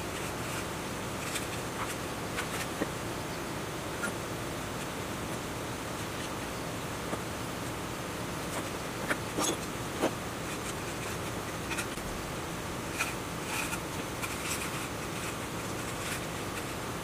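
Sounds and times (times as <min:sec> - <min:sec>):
steady hiss: 0:00.0 - 0:17.0
scratchy rubbing of wire: 0:12.8 - 0:17.0.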